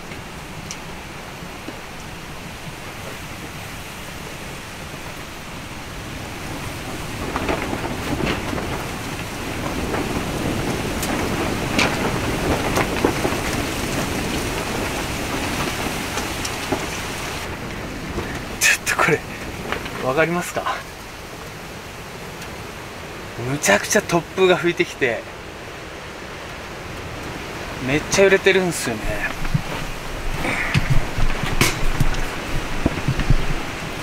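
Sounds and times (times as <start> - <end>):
gusty wind buffeting tent: 0.0 - 34.0
tent fabric flapping and snapping: 6.2 - 20.5, 28.9 - 34.0.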